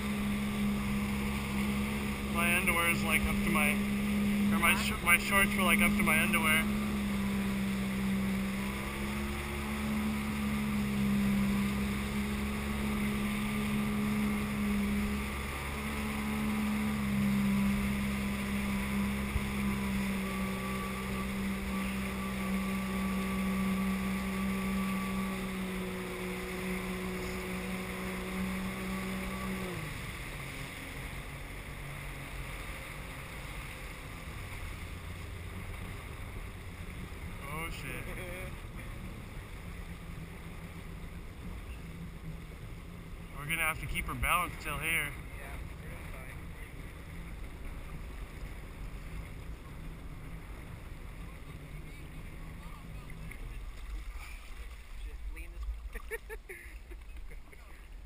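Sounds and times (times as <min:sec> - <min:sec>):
personal watercraft engine running: 0:00.0 - 0:58.0
water rushing: 0:00.0 - 0:58.0.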